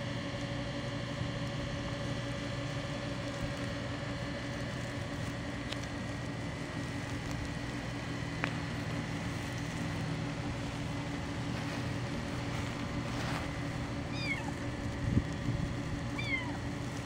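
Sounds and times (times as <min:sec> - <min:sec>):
low mechanical hum: 0:00.0 - 0:17.0
kitten meowing: 0:14.1 - 0:14.7, 0:16.1 - 0:16.7.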